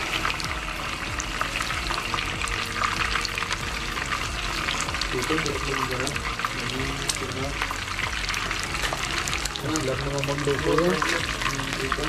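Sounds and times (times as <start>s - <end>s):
fish sizzling in oil: 0.0s - 12.0s.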